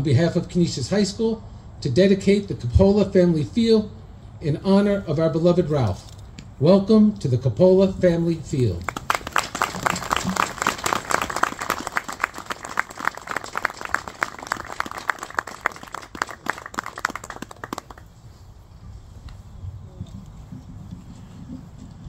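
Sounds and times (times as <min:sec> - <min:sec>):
crowd applauding: 0:08.9 - 0:18.1.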